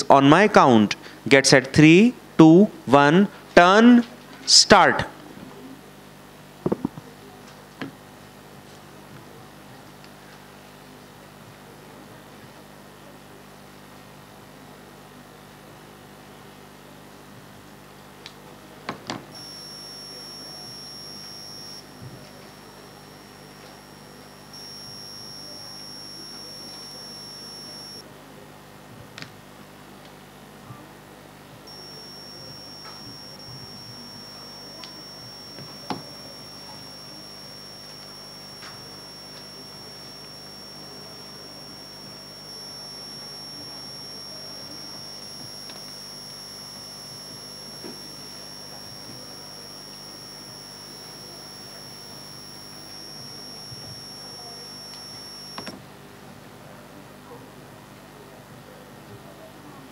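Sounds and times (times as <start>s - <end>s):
high-pitched electronic tone: 19.4s - 28.0s, 31.7s - 55.7s.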